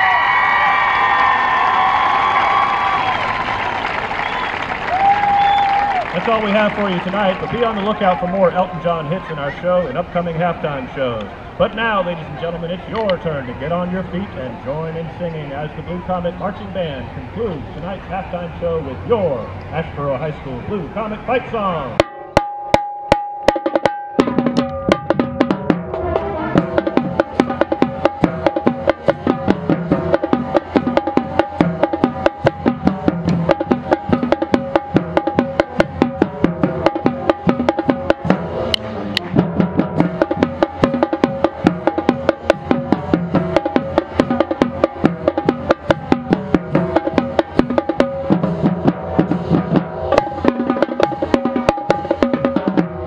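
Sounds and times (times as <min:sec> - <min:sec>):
marching band playing: 0:00.0 - 0:53.0
tenor drum strokes: 0:21.9 - 0:53.0.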